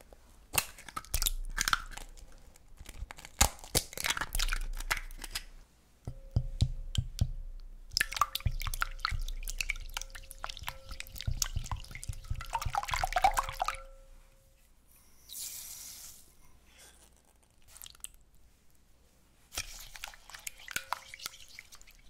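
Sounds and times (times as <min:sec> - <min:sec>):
whisk tapping glass bowl: 0:06.1 - 0:14.0, 0:19.6 - 0:22.0
egg splashing into bowl: 0:07.9 - 0:13.9
liquid egg sloshing: 0:07.9 - 0:13.9, 0:19.6 - 0:22.0.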